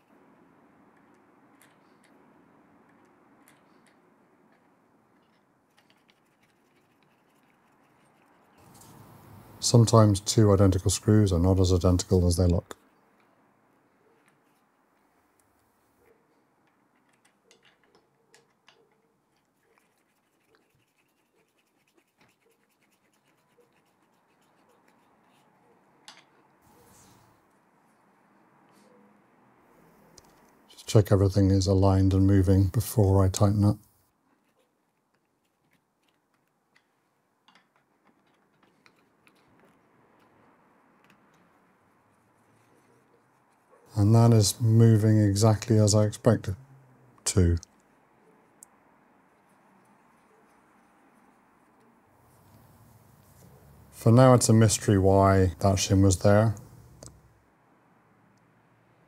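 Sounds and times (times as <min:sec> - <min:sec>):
screwdriver scratching and clicking: 0:02.8 - 0:09.0
small metal clicks: 0:16.6 - 0:19.5, 0:35.0 - 0:41.6.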